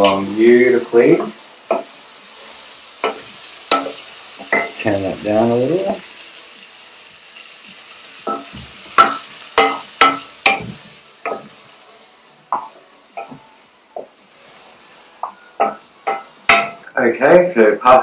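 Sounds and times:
meat sizzling in a pan: 0.0s - 16.9s
utensil knocking against pan: 8.3s - 11.5s.

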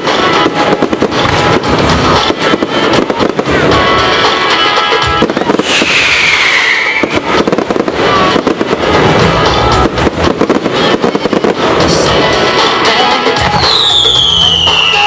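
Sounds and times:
fireworks crackling and bursting: 0.0s - 15.0s
music: 0.0s - 15.0s
firework whistle falling in pitch: 5.4s - 8.4s, 13.4s - 15.0s.

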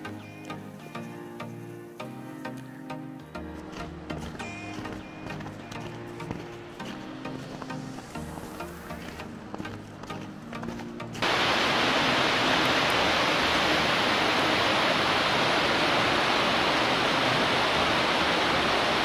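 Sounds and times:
background music: 0.0s - 19.0s
water gushing and splashing: 11.2s - 19.0s.

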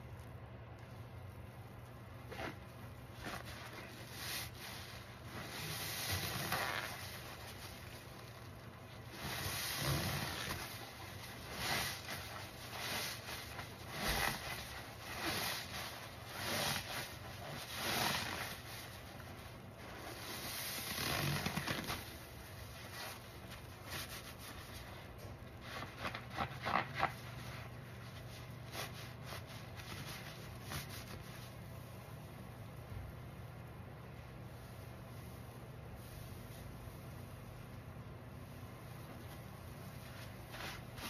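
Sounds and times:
crackling foam: 0.0s - 37.7s, 38.5s - 41.0s
sponge squelching in soapy water: 2.1s - 32.0s.

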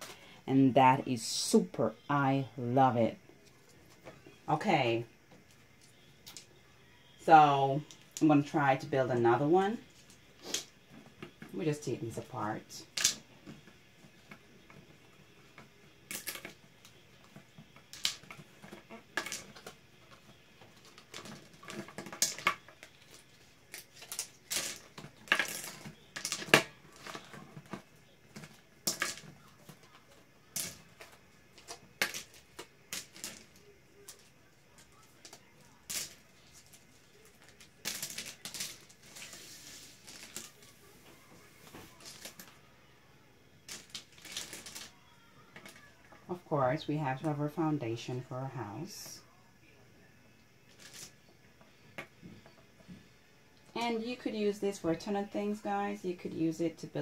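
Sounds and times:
plastic blocks clicking and clattering: 15.5s - 40.7s, 41.8s - 42.6s, 43.6s - 45.9s, 50.7s - 51.2s.

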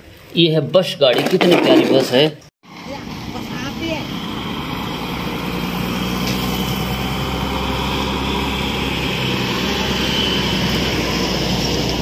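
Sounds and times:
bus engine rumbling: 2.7s - 12.0s
motorcycle passing: 2.7s - 12.0s.

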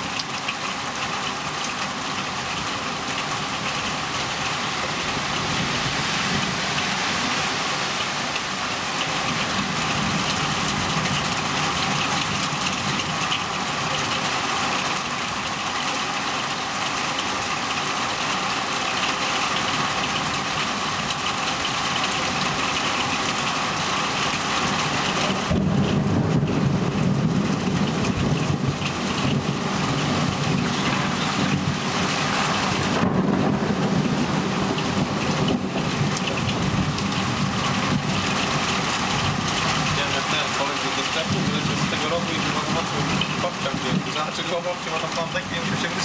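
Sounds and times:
heavy rain falling: 0.0s - 46.0s
low thunder rumbling: 8.6s - 14.6s, 24.2s - 46.0s.

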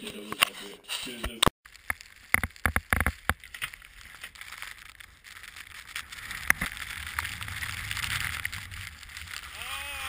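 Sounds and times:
wind and snow on microphone: 2.2s - 10.0s.

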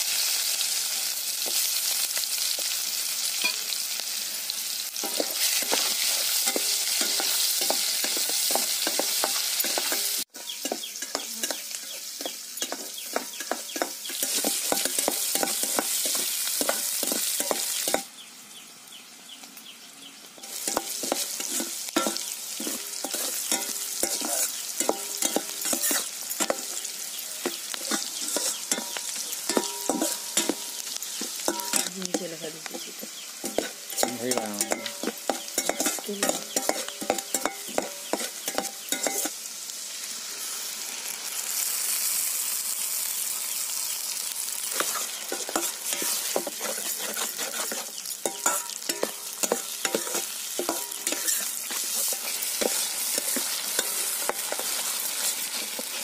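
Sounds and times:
onions sizzling in hot oil: 0.0s - 56.0s
metal spatula scraping a pan: 4.9s - 18.1s, 20.4s - 39.4s, 44.6s - 56.0s.

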